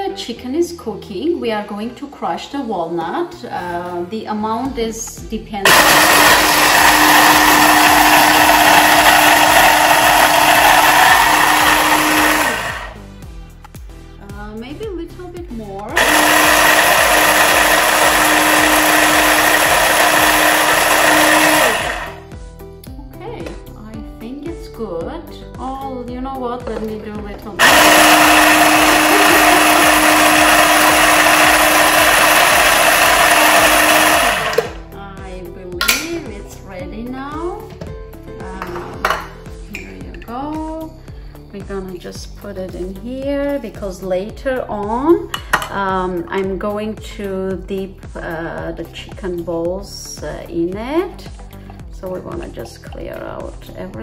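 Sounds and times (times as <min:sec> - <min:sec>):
food chopper grinding nuts: 0:05.7 - 0:13.0, 0:15.9 - 0:22.2, 0:27.6 - 0:34.9.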